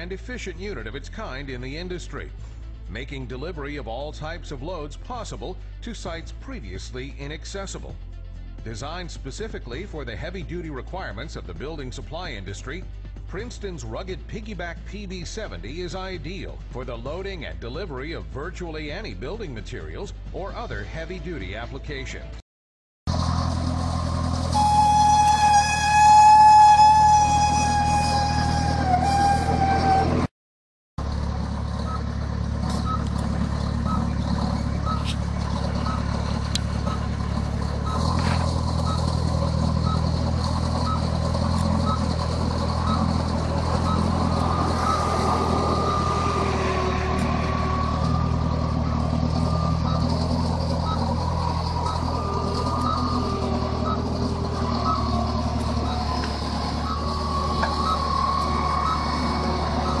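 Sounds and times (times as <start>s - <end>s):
forklift engine running: 23.1s - 30.3s, 31.0s - 60.0s
backup alarm beeping: 34.8s - 35.1s, 35.8s - 36.1s, 40.8s - 41.1s, 41.8s - 42.2s, 42.8s - 46.0s, 48.8s - 55.2s, 56.6s - 60.0s.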